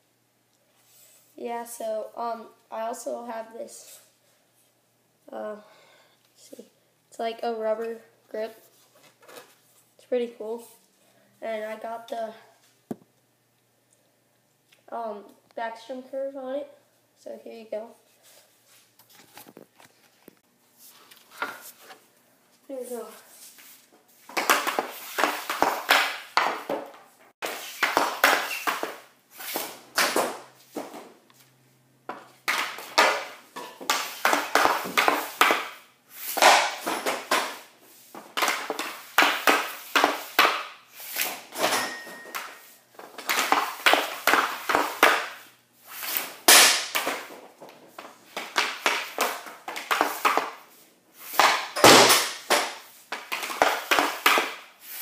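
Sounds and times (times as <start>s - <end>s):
pucks smacking net and boards: 24.2s - 31.2s, 32.1s - 55.0s.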